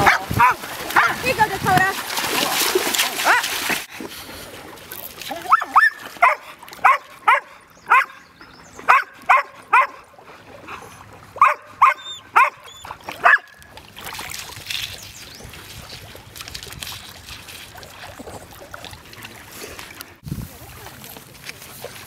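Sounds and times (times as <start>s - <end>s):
dog yipping barks: 5.5s - 8.2s, 8.9s - 10.0s, 11.4s - 13.6s.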